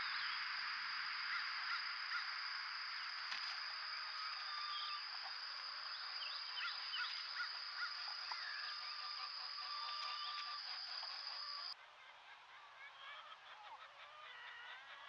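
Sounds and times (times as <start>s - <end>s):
steady high-pitched whine: 0.0s - 11.8s.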